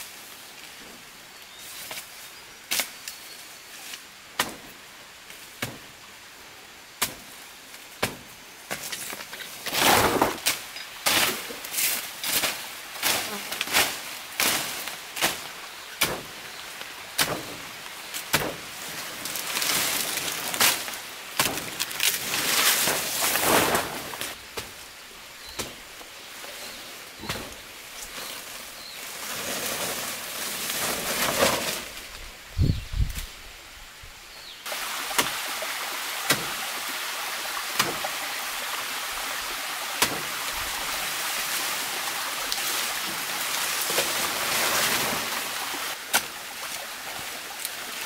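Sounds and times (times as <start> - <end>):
leaves and stems rustling: 0.0 - 6.0, 6.9 - 48.0
machete chopping undergrowth: 4.4 - 4.8, 5.6 - 5.9, 7.0 - 7.3, 8.0 - 16.4, 17.2 - 18.7, 19.3 - 24.8, 25.5 - 25.8, 27.2 - 27.6, 35.1 - 35.4, 36.2 - 36.6, 37.7 - 38.2, 40.0 - 40.4, 45.9 - 46.4.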